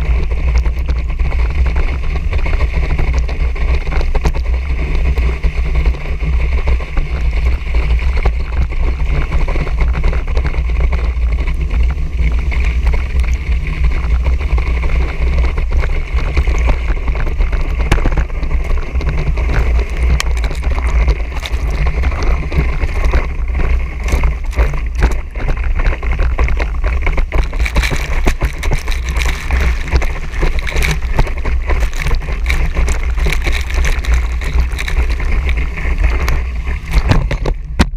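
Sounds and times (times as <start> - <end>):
water spraying off water skis: 0.0 - 37.8
deep rumble: 0.0 - 37.9
wind buffeting microphone: 0.0 - 37.9
knocks and splatters: 8.0 - 37.9.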